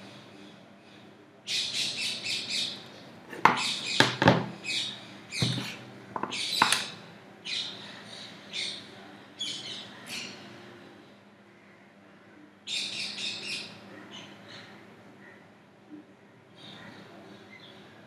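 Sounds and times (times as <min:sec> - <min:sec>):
birds chirping: 0:01.5 - 0:10.4.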